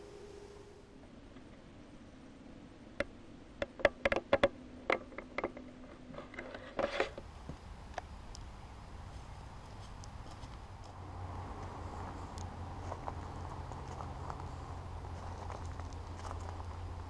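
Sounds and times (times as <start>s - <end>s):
sharp clicks and knocks: 3.0s - 8.5s.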